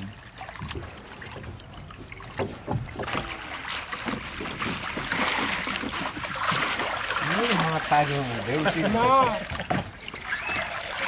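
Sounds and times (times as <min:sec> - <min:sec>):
water sloshing and splashing: 0:00.0 - 0:11.0.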